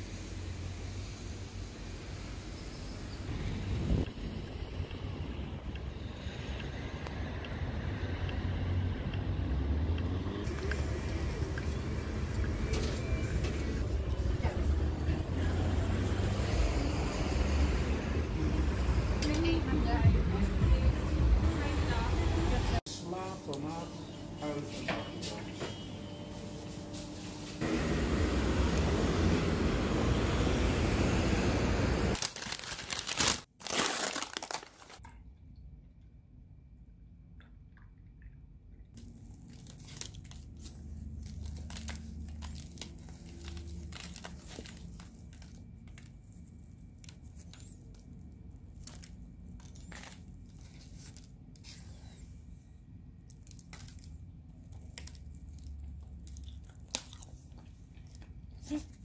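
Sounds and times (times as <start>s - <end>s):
paper bag crinkling: 32.1s - 35.0s, 39.0s - 51.8s.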